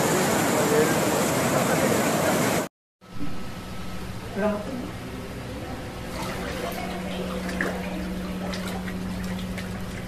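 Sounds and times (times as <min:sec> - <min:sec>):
water splashing and dripping: 0:06.1 - 0:10.0.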